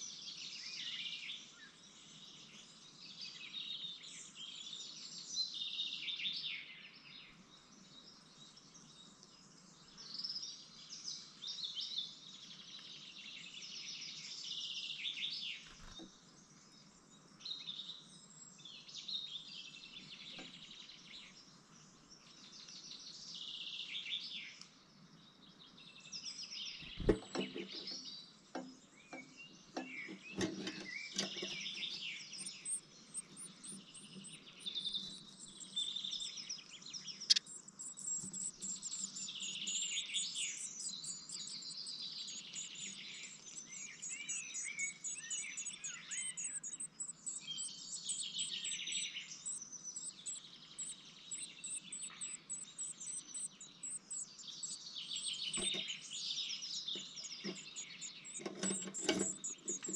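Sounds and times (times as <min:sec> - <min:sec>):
high-pitched bird chirps: 0:37.1 - 0:59.9
knocks and scratches on wood: 0:58.4 - 0:59.9.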